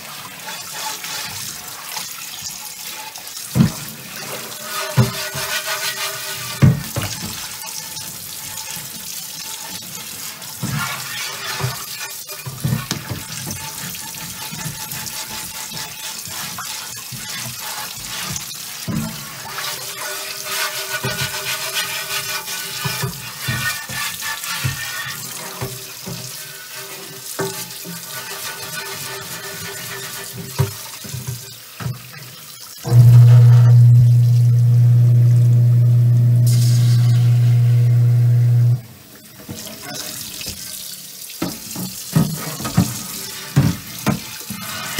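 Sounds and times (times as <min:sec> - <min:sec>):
tap water running into pan: 0:00.0 - 0:44.9
knocks of pan and scrubber: 0:03.5 - 0:07.6, 0:10.5 - 0:32.0, 0:41.4 - 0:44.9.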